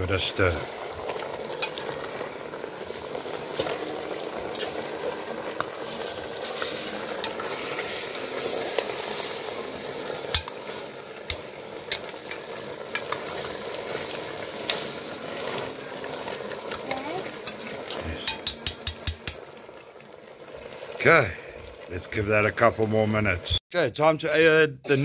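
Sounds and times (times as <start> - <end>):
meat sizzling in a pot: 0.0 - 23.6
metal spoon stirring: 4.4 - 5.0, 10.2 - 19.4.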